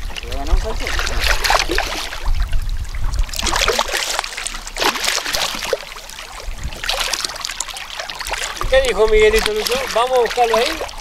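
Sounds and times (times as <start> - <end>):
fish splashing at water surface: 0.0 - 2.5, 3.2 - 11.0.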